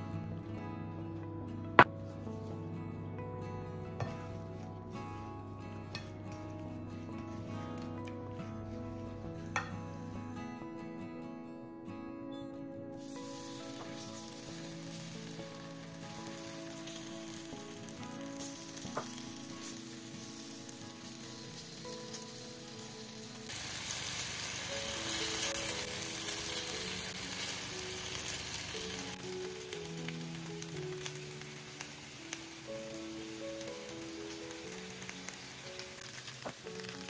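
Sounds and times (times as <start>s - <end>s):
potatoes sizzling in a pan: 13.0s - 37.0s.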